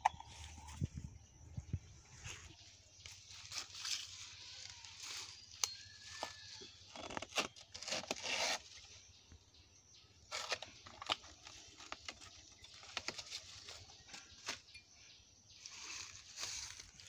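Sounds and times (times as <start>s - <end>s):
fibrous sheath tearing: 6.3s - 8.8s
knife cutting trunk: 7.0s - 8.8s.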